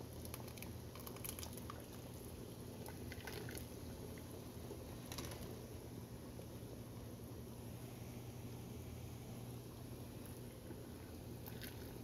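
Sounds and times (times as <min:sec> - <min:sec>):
steady low hum: 0:00.0 - 0:12.0
ladle pouring liquid: 0:00.2 - 0:04.2, 0:10.2 - 0:12.0.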